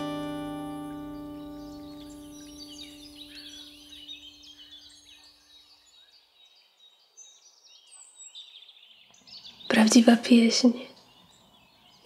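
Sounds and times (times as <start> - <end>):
acoustic guitar chord ringing: 0.0 - 4.6
songbirds chirping and warbling: 0.0 - 12.0.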